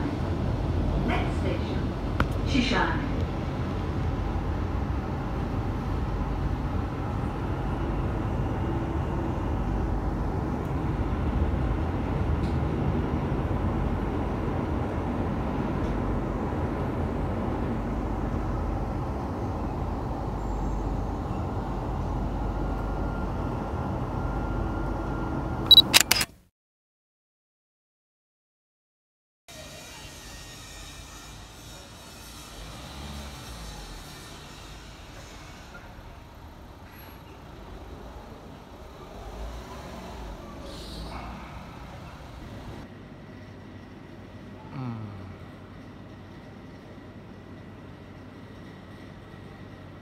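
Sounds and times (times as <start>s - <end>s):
metro train rumbling: 0.0s - 25.7s, 29.6s - 50.0s
sharp clicks: 25.7s - 26.4s.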